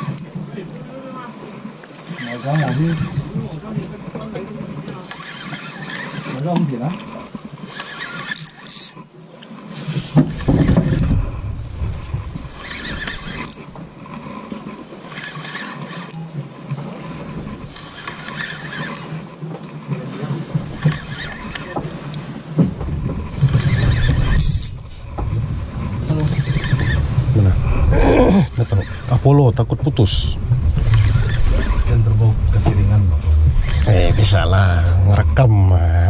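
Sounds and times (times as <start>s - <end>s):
fishing reel drag squealing: 2.0s - 3.3s, 5.0s - 6.6s, 7.6s - 9.2s, 12.5s - 13.7s, 15.1s - 16.3s, 17.7s - 19.2s, 20.8s - 22.3s, 23.5s - 25.0s, 26.2s - 27.1s, 28.4s - 29.2s, 30.9s - 31.9s, 33.6s - 34.0s
heavy low rumbles: 27.1s - 36.0s.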